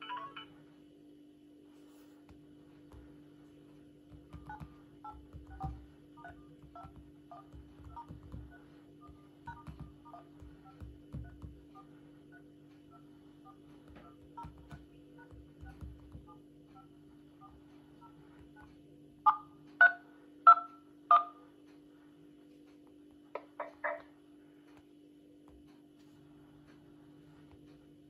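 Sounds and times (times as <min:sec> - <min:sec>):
fingertips tapping screens: 0:01.8 - 0:21.8, 0:22.5 - 0:28.0
keypad touch-tone beeps: 0:04.2 - 0:18.7.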